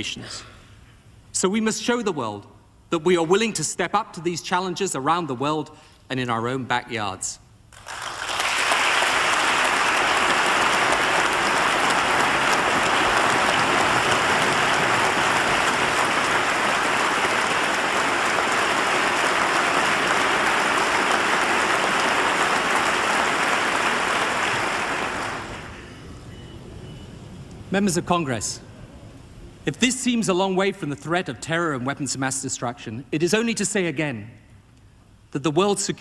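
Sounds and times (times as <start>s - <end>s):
large audience applauding: 7.8s - 25.9s.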